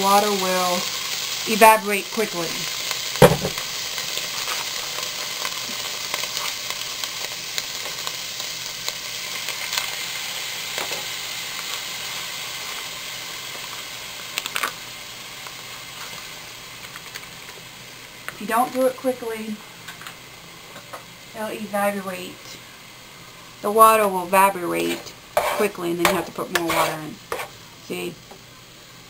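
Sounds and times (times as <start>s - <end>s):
beef sizzling in a frying pan: 0.0s - 29.0s
sharp knock: 3.2s - 3.6s.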